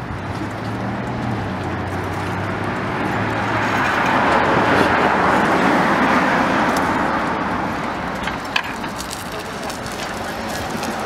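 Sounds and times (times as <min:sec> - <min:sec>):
vehicle passing by: 0:00.0 - 0:11.0.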